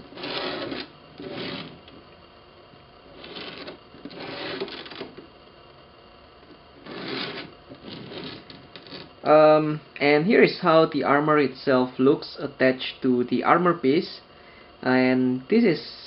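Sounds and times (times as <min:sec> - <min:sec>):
cardboard box rubbing and scraping: 0:00.0 - 0:01.7, 0:03.2 - 0:05.1, 0:06.8 - 0:09.0.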